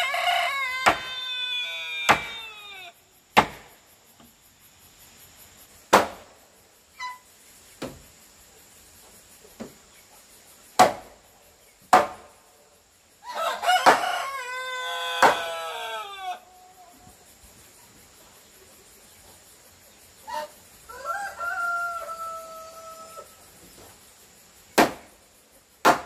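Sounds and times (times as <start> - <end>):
rooster crowing: 0.0 - 2.9, 13.2 - 16.6, 20.9 - 23.4.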